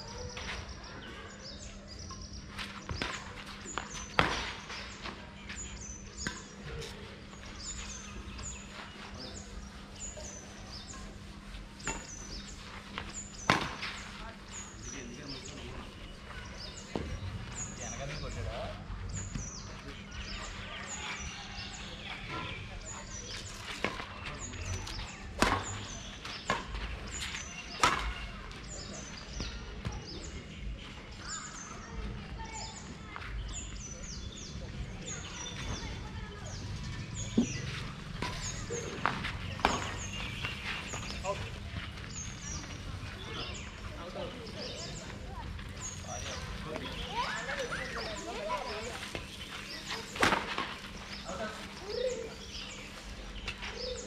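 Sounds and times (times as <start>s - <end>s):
rackets hitting shuttlecock: 38.2s - 40.2s.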